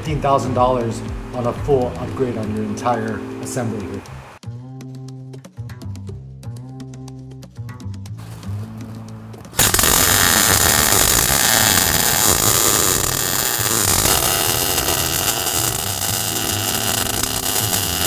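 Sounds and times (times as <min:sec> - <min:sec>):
background music: 0:00.0 - 0:18.0
welder arc crackling and hissing: 0:09.5 - 0:18.0.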